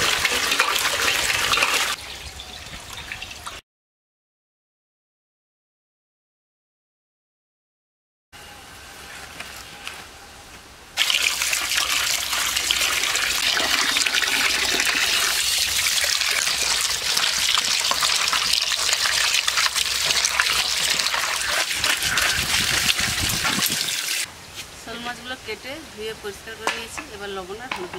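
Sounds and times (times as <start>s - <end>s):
water pouring and splashing: 0.0s - 3.6s, 11.0s - 24.3s.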